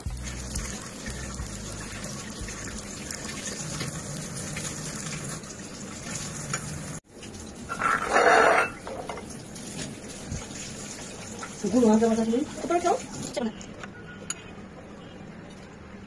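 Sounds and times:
custard poured and scraped: 7.7s - 8.8s.

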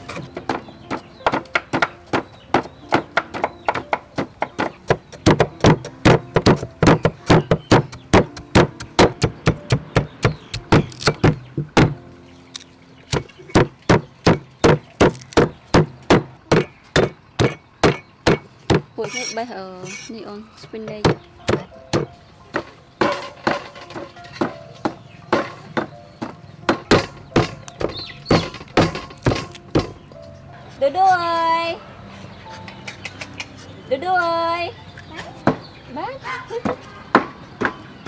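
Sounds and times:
pestle pounding in stone mortar: 0.2s - 12.0s, 13.1s - 19.3s, 20.9s - 30.0s.

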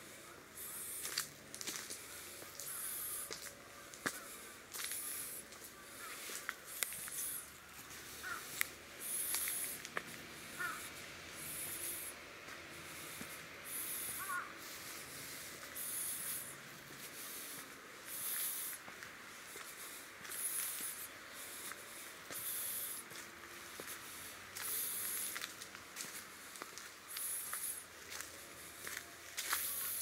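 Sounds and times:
footsteps crunching dry leaves: 0.0s - 30.0s
crow cawing: 0.1s - 9.8s, 10.4s - 12.2s, 13.6s - 16.5s.

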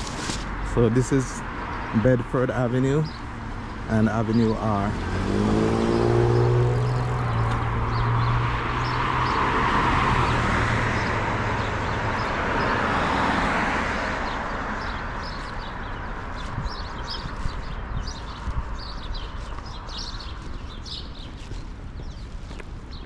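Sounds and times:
road noise of passing vehicle: 0.0s - 23.0s
vehicle engine pulling away: 4.7s - 13.8s.

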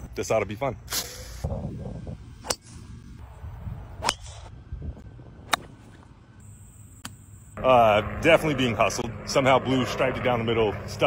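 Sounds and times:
golf club striking ball: 2.4s - 2.8s, 4.0s - 4.5s, 5.5s - 5.8s.

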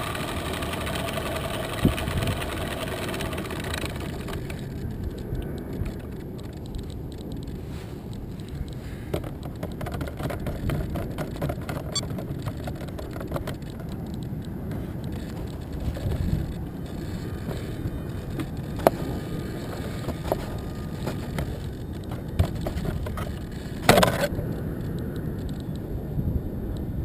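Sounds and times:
crackling rustle: 0.0s - 25.9s
small clicks: 0.0s - 25.9s
wind buffeting microphone: 0.1s - 27.0s.

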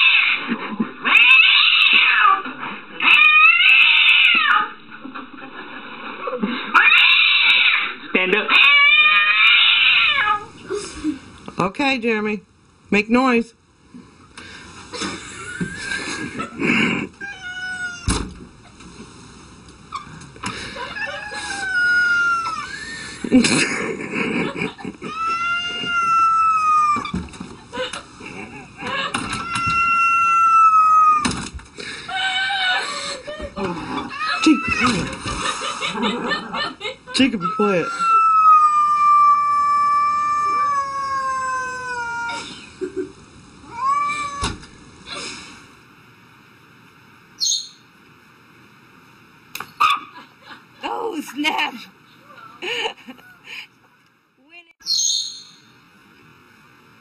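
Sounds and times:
cat yowling: 0.0s - 0.4s, 1.0s - 4.8s, 6.7s - 7.9s, 8.5s - 10.6s, 17.2s - 18.1s, 20.9s - 22.9s, 25.0s - 27.2s, 29.0s - 31.3s, 34.0s - 35.1s, 37.4s - 42.7s, 43.7s - 44.6s.

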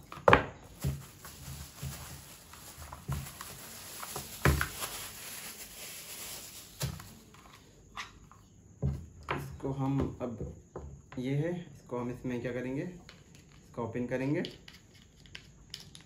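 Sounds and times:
plastic bag crinkling: 0.6s - 7.3s.

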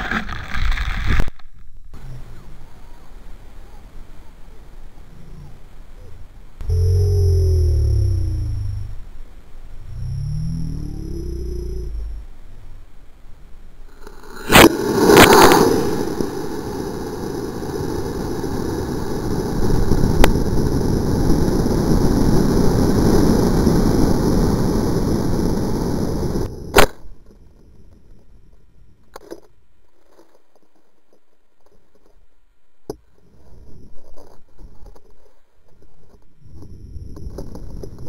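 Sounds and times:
rocket rushing noise: 13.9s - 26.9s
rocket hitting the ground: 14.0s - 26.0s
sharp pop: 14.4s - 16.0s, 26.7s - 27.1s.

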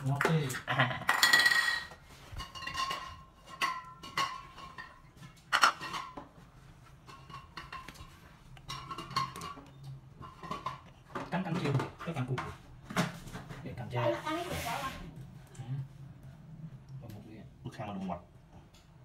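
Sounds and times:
utensil clinking against plate: 7.0s - 12.6s.

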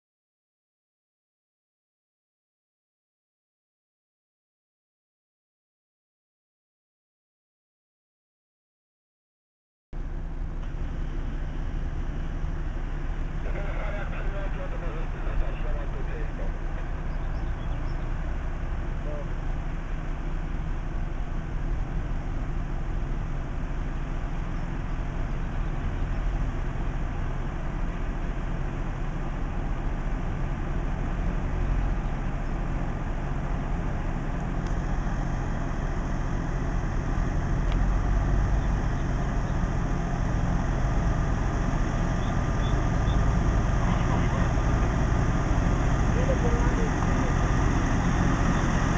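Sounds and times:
tractor diesel engine running: 10.0s - 48.9s.

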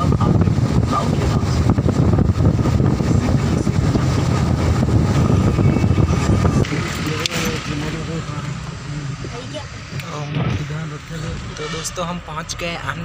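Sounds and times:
vehicle road noise: 0.0s - 13.0s
wind buffeting microphone: 0.0s - 13.0s.

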